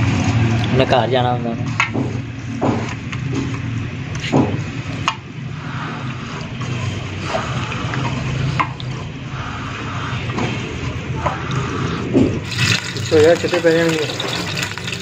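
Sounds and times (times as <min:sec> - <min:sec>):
steady low hum: 0:01.9 - 0:13.1.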